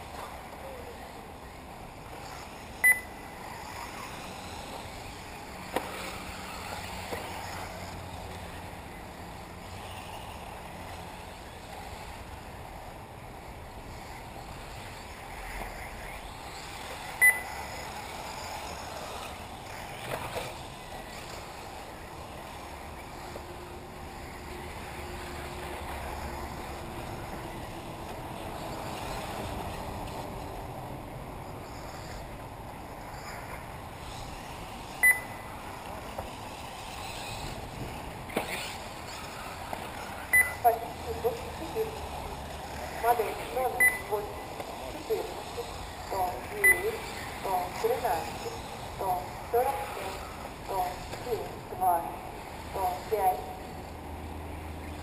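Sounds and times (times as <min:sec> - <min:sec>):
electric rc buggies running: 0:00.0 - 0:55.0
high electronic beep: 0:02.8 - 0:03.2, 0:17.2 - 0:17.6, 0:35.0 - 0:35.4, 0:40.3 - 0:40.6, 0:43.8 - 0:44.1, 0:46.6 - 0:46.9.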